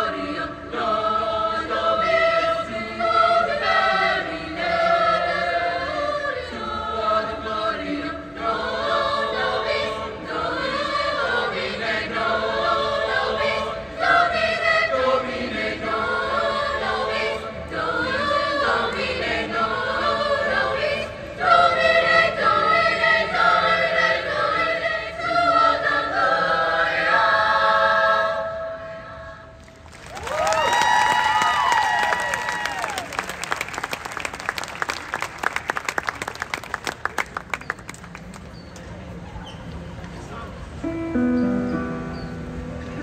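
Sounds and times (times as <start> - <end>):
mixed choir singing: 0.0 - 29.6
applause and cheering: 29.6 - 38.5.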